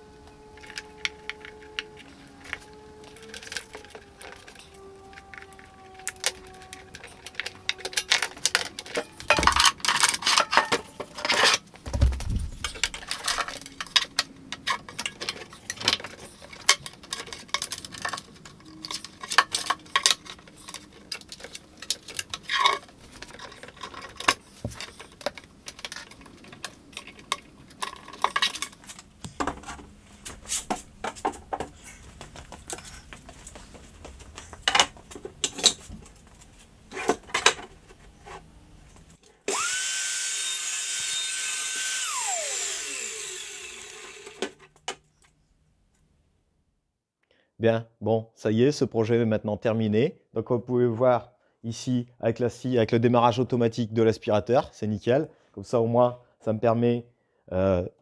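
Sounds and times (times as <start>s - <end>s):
heavy thumps: 11.8s - 13.4s.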